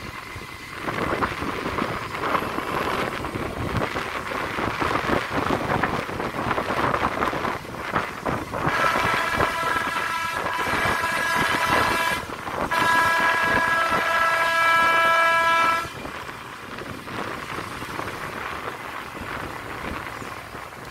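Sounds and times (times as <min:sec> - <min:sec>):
wind and motorcycle road noise: 0:00.0 - 0:20.9
vehicle horn blasts: 0:08.7 - 0:16.0.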